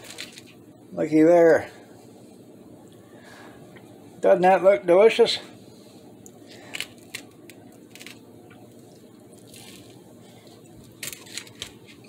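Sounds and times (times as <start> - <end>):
crisp toast crackling: 0.0 - 0.6, 6.3 - 12.0.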